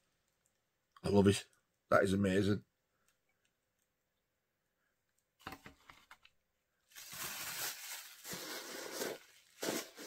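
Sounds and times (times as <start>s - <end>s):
packaging rustling: 6.8s - 10.0s.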